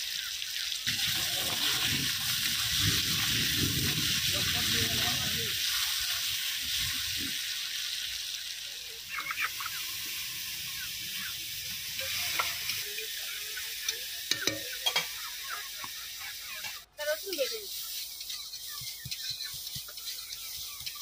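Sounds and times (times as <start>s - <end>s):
potatoes sizzling in oil: 0.0s - 21.0s
metal spatula stirring: 11.9s - 21.0s.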